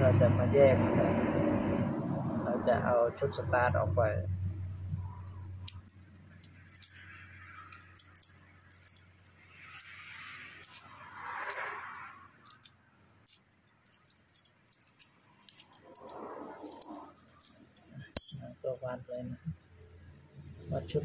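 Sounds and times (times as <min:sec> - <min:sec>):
copper wires scraping rustle: 0:05.0 - 0:20.2.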